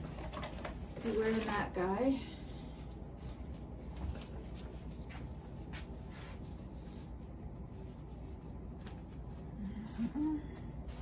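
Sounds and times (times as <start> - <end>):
low room hum: 0.0 - 11.0
face mask rustling: 2.6 - 11.0.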